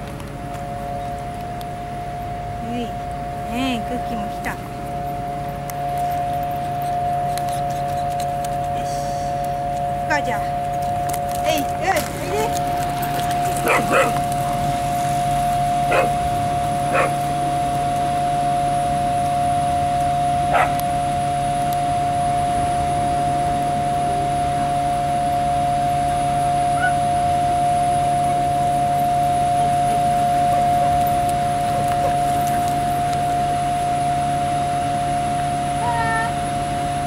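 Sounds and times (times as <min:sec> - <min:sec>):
steady droning tone: 0:00.0 - 0:37.0
dog barking: 0:13.6 - 0:14.2, 0:15.9 - 0:16.2, 0:16.9 - 0:17.2, 0:20.5 - 0:20.8.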